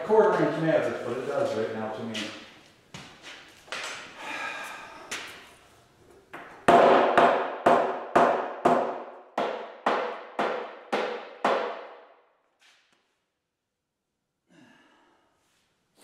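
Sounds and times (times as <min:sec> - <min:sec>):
hammer striking wooden board: 0:06.4 - 0:12.2.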